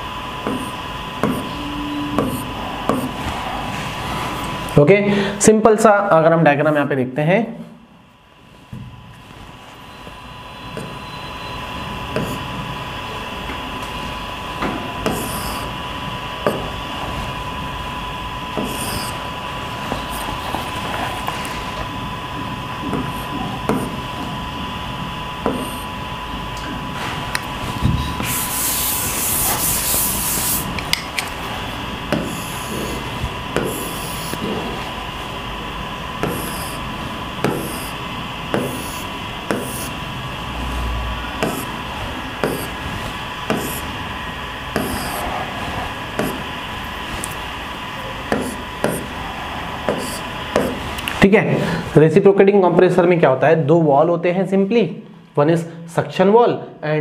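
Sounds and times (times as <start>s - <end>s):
marker squeaking on board: 0.5s - 3.2s, 15.0s - 15.7s, 18.6s - 19.2s, 19.9s - 20.6s, 25.5s - 25.9s, 32.1s - 33.0s, 33.6s - 34.4s, 36.2s - 36.8s, 37.4s - 40.0s, 41.4s - 41.8s, 42.4s - 42.8s, 43.5s - 43.9s, 44.7s - 45.3s, 49.9s - 50.8s
board wiping hiss: 18.6s - 19.2s, 28.2s - 30.8s, 32.1s - 34.9s, 36.2s - 40.0s, 41.4s - 43.9s, 44.7s - 46.4s, 48.3s - 50.9s.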